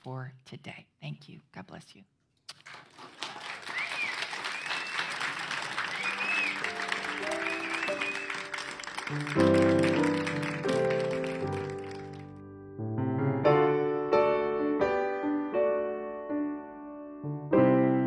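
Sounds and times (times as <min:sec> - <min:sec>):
audience applauding: 0:02.6 - 0:12.4
instrumental music: 0:05.4 - 0:18.0.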